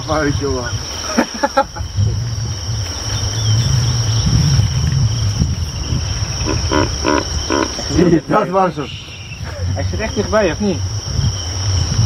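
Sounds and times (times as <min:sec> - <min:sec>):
crickets and insects chirring: 0:00.0 - 0:12.0
deep low rumble: 0:01.7 - 0:08.1, 0:08.9 - 0:12.0.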